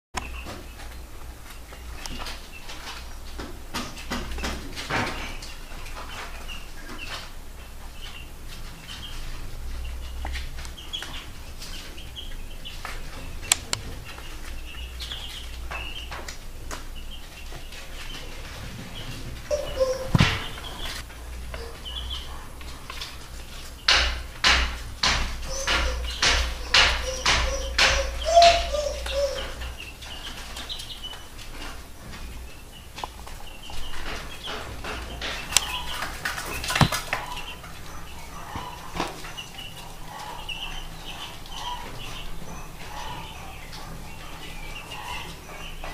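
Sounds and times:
chicks peeping: 0.2s - 45.9s
hen clucking low: 19.5s - 21.0s.

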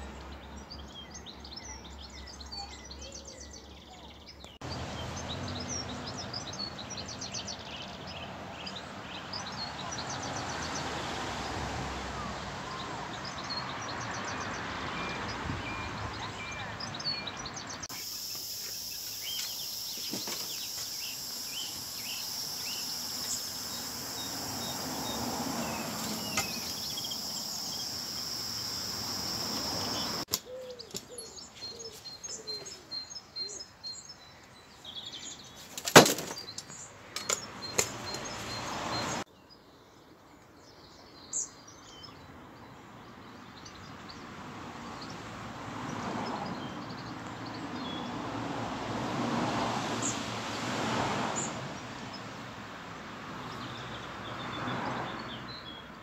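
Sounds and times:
small birds chirping: 0.0s - 10.8s, 12.6s - 44.3s, 53.4s - 56.0s
background hiss: 17.9s - 30.3s.

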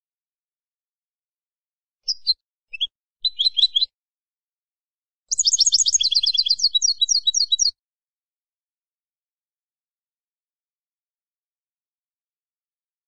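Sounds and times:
goldfinch calls and twittering: 2.1s - 3.9s, 5.3s - 7.7s.

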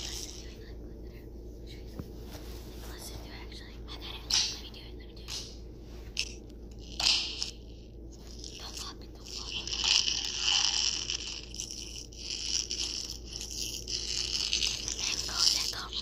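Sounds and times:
scraping and crunching: 6.0s - 16.0s.

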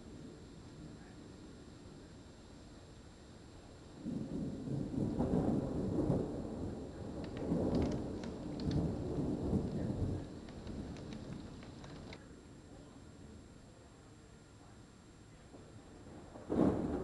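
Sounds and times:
thunder rumbling: 0.0s - 12.2s, 15.9s - 17.0s
raindrop ticks: 7.0s - 12.2s.

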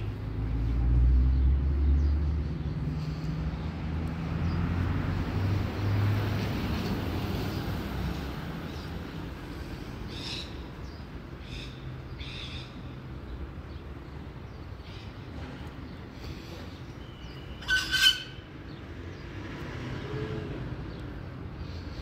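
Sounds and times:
bird call: 17.0s - 18.5s.

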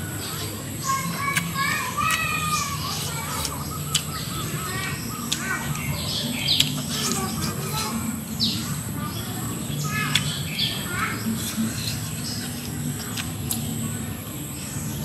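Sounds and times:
birds chirping and calling: 0.0s - 15.0s
eating clicks and smacks: 1.0s - 8.0s, 10.1s - 10.5s, 11.4s - 13.8s.

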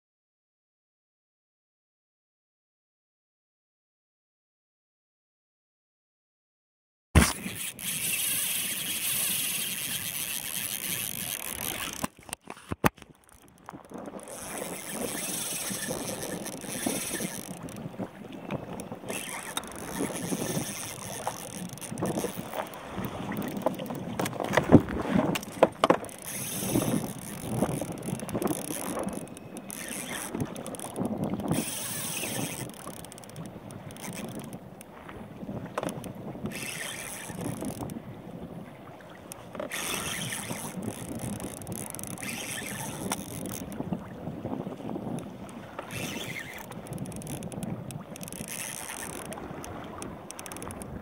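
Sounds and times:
water lapping against hull: 7.2s - 51.0s
wind buffeting microphone: 13.0s - 51.0s.

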